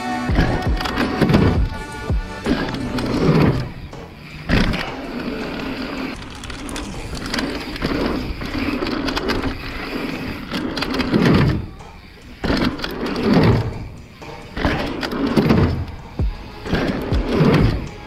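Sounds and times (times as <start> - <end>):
bike thumps: 0.3 - 18.0
bike tyres rumbling on dirt: 0.3 - 18.0.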